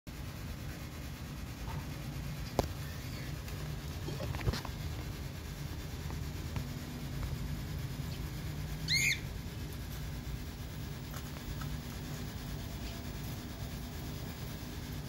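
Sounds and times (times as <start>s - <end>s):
steady low hum: 0.1s - 15.0s
bird chirp: 8.8s - 9.3s.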